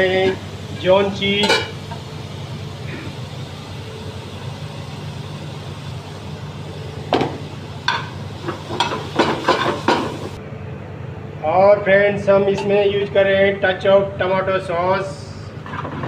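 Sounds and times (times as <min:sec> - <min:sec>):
tongs clanking on metal pan: 0:01.4 - 0:02.0, 0:07.8 - 0:10.2.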